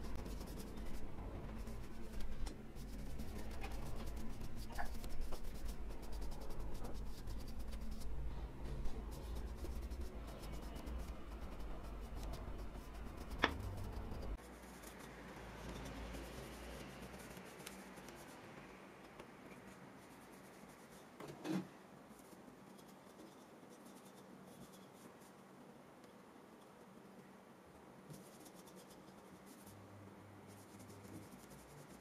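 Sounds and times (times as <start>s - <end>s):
paintbrush rubbing on wood: 0.0s - 18.5s, 30.5s - 32.0s.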